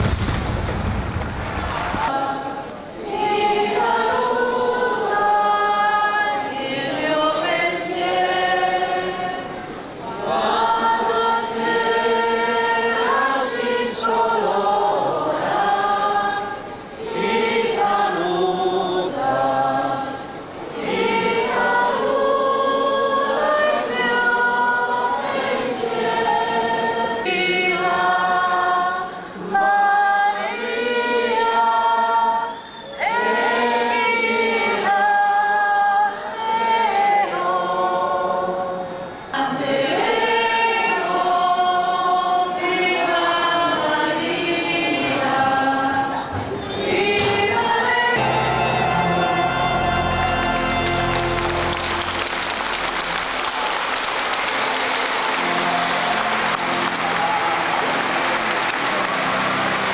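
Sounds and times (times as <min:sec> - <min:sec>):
choir singing a hymn: 0:01.9 - 0:59.9.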